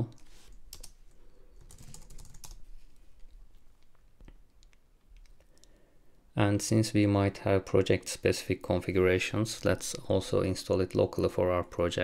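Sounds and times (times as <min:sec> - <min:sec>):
faint keyboard typing: 0:00.1 - 0:05.8.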